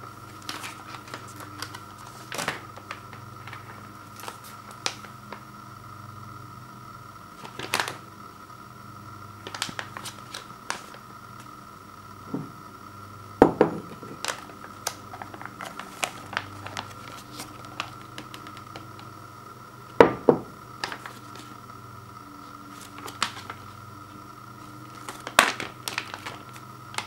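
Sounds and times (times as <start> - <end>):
plastic pouch crinkling: 0.2 - 5.4, 7.4 - 8.0, 9.4 - 11.0, 13.8 - 19.1, 20.8 - 21.6, 22.7 - 23.8, 24.6 - 27.0.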